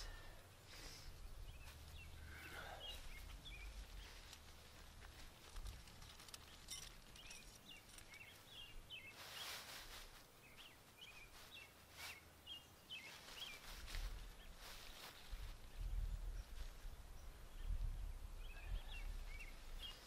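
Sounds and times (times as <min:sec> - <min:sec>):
small bird chirping: 0:01.4 - 0:09.7.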